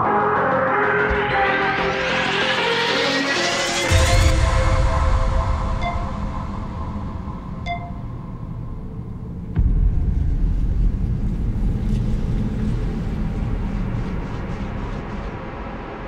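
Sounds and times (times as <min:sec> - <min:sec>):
deep low hit: 0:03.9 - 0:15.6
low rumbling drone: 0:03.9 - 0:16.0
notification ping: 0:05.8 - 0:06.1, 0:07.6 - 0:08.1.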